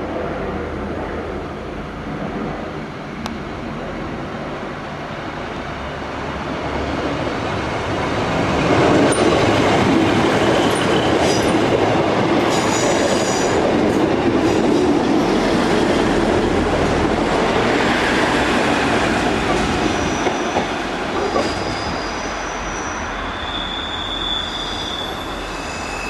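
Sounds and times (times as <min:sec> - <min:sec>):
diesel train passing: 0:00.0 - 0:26.0
wheel squeals: 0:19.7 - 0:26.0.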